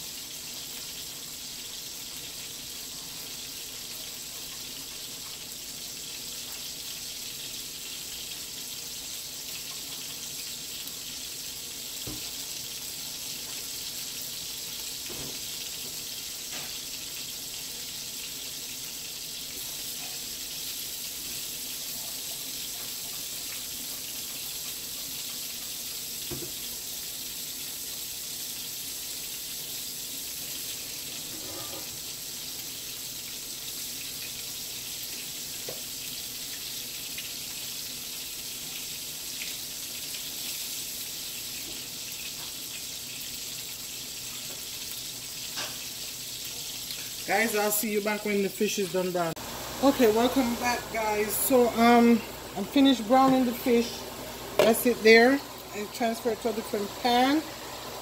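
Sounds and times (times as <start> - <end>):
fish sizzling in frying pan: 0.0 - 58.0.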